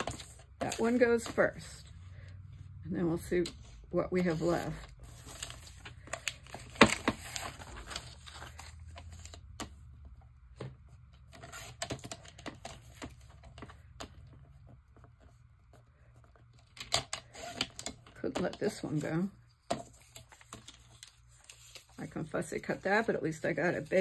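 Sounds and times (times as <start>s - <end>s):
magazine paper rustling: 4.3s - 9.4s.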